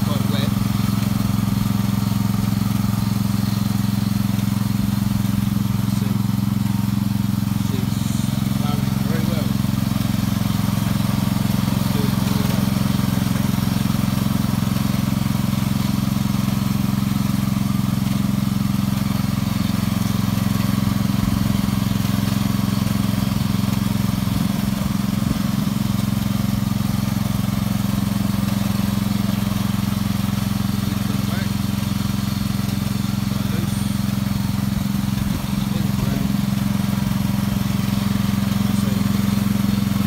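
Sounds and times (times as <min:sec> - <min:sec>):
garden tractor engine running: 0:00.0 - 0:40.0.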